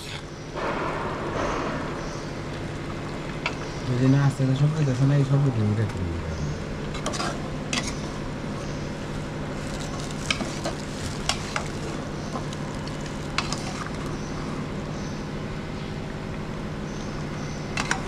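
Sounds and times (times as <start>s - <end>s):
sizzling in pot: 9.0s - 14.1s.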